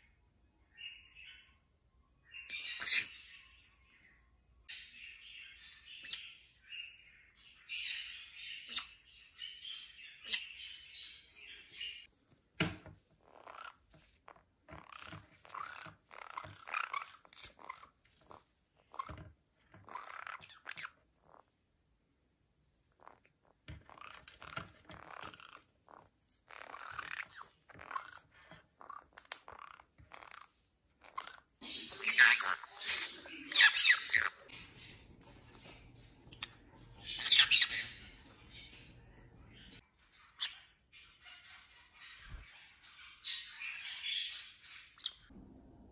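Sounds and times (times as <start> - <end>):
parrots chattering: 7.7 - 11.1, 13.2 - 21.6, 22.9 - 45.3.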